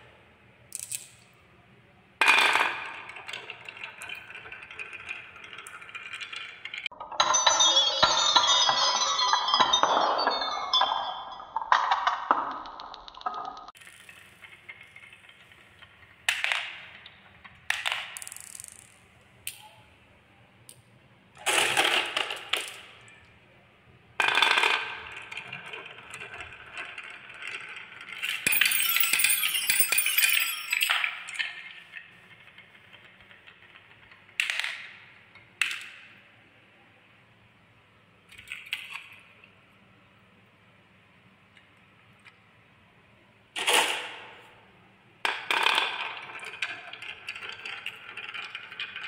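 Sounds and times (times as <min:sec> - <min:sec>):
marbles rolling down wooden run: 0:02.2 - 0:10.6, 0:11.8 - 0:19.0, 0:24.2 - 0:35.8, 0:45.2 - 0:49.0.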